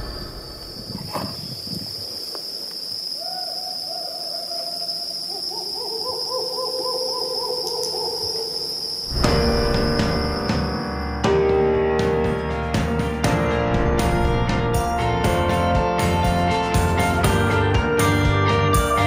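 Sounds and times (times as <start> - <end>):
owl hooting: 3.2 - 10.3.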